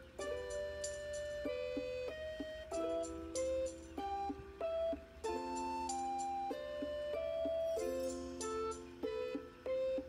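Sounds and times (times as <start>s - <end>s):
light instrumental tune: 0.0s - 10.0s.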